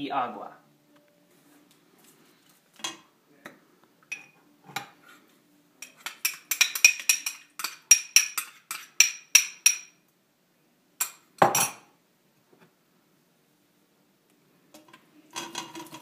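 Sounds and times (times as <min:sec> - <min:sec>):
spoon clinking in glass cup: 0:04.1 - 0:04.4, 0:05.8 - 0:10.0.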